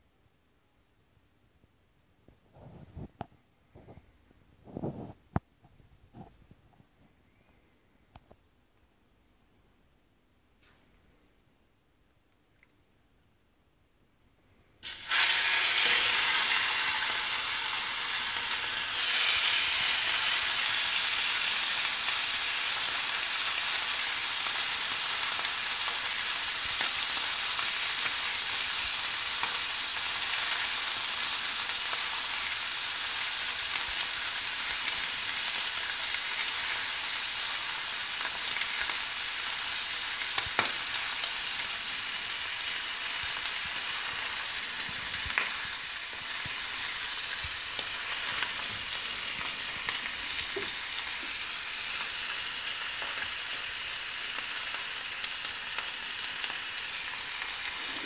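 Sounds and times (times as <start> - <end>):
meat sizzling on a griddle: 14.8 - 58.0.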